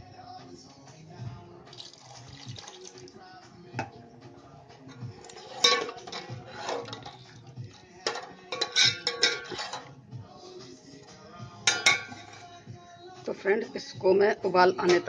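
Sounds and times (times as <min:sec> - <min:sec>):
ladle scraping a metal pot: 0:04.9 - 0:10.0, 0:11.6 - 0:12.6.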